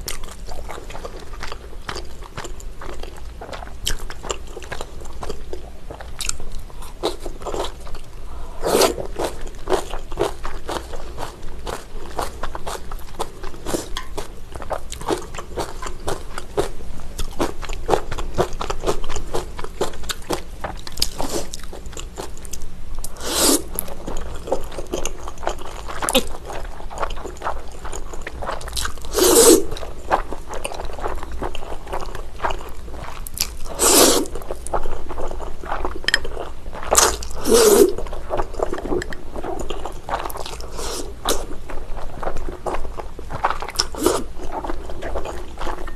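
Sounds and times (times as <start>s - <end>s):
noodle slurps: 23.2s - 23.7s, 29.1s - 29.7s, 33.7s - 34.3s, 37.4s - 38.0s.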